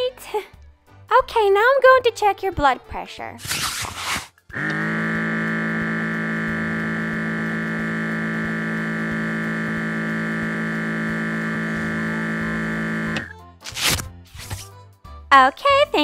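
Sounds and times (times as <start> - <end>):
steady electronic buzzing tone: 4.5 - 13.3.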